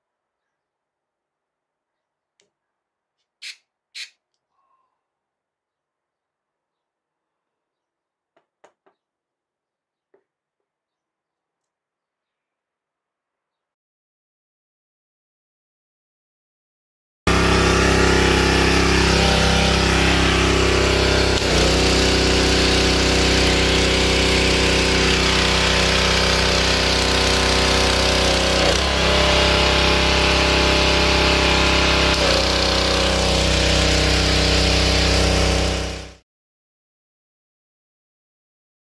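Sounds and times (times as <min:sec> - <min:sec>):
pressure washer engine running: 0:17.3 - 0:36.2.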